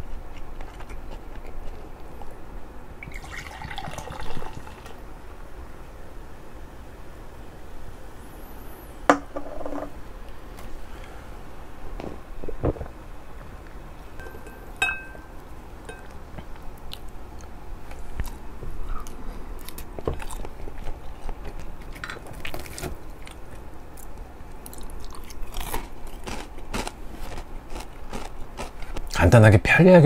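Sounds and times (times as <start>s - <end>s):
person chewing food: 0.0s - 2.4s, 15.9s - 29.2s
short ringing clink: 14.2s - 15.3s.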